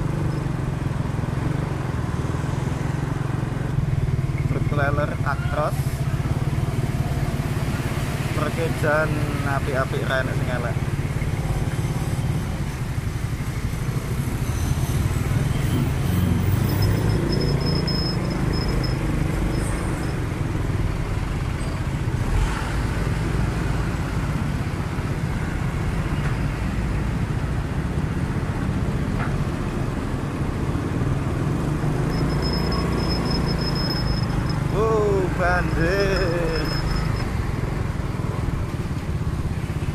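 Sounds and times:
road traffic noise: 0.0s - 39.9s
thin high steady tone: 32.2s - 37.2s.

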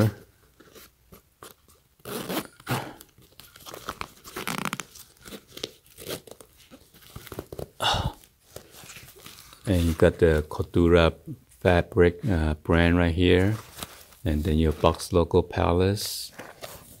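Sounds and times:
nylon rustling and crinkling: 0.0s - 10.8s, 13.2s - 15.2s
zipper pulled open: 2.0s - 2.7s, 4.3s - 5.0s.

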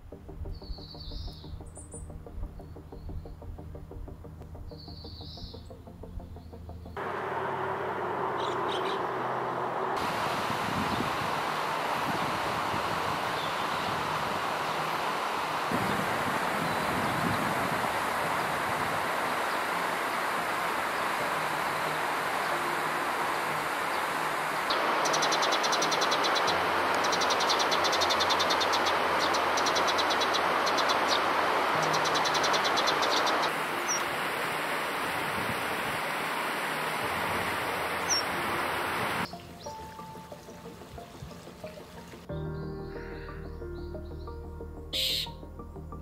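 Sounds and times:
sparrows chirping: 0.6s - 3.4s, 4.7s - 5.7s, 8.2s - 9.7s, 10.7s - 34.1s, 37.9s - 45.4s
wind through leaves: 7.0s - 42.6s.

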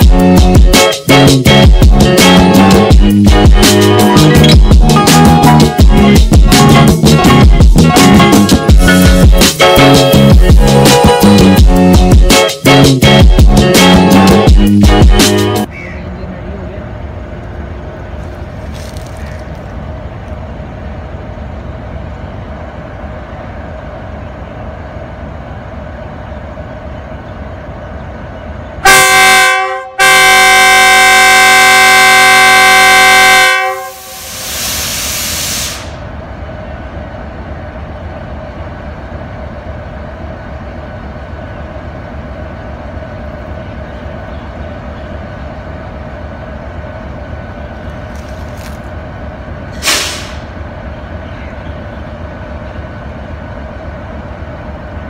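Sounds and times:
locomotive engine running: 0.0s - 55.0s
locomotive horn blasts: 28.8s - 34.3s
hiss: 33.9s - 36.0s, 49.7s - 50.5s.

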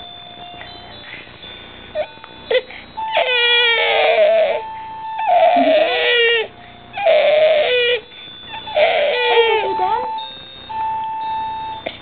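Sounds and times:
baby crying: 2.5s - 10.1s.

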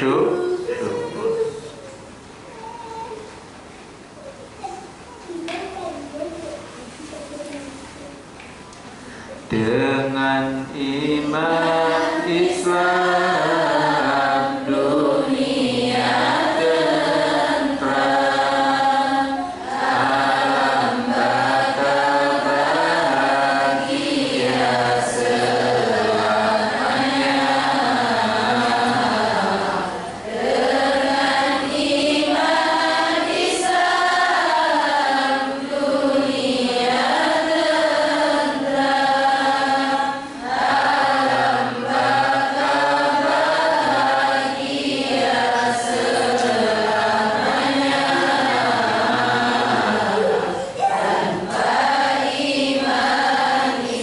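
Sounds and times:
man chanting into a microphone: 9.5s - 13.6s.

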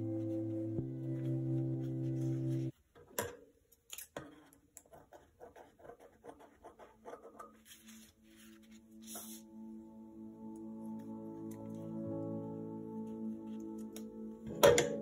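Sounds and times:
ambient music: 0.0s - 2.7s, 7.6s - 15.0s.

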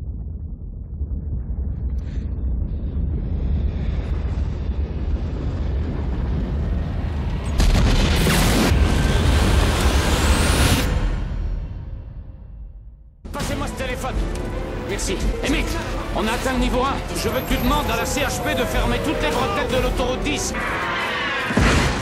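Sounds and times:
deep steady rumble: 0.0s - 11.0s
explosions and roaring fire: 0.0s - 11.8s, 16.4s - 22.0s.

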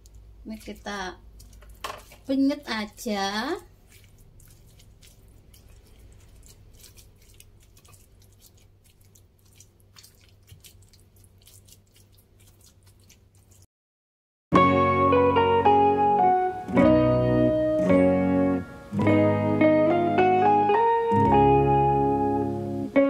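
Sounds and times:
pestle mashing in stone mortar: 3.8s - 13.6s.

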